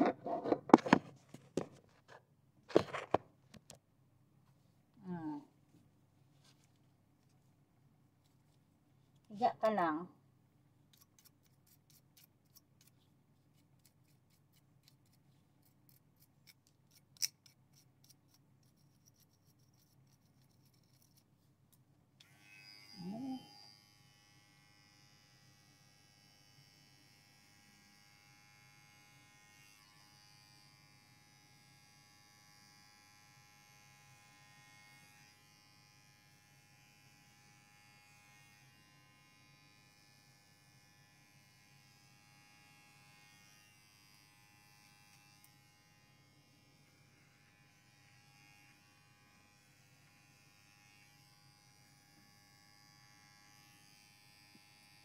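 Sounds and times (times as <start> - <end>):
electric hair clippers buzzing: 22.2 - 55.0.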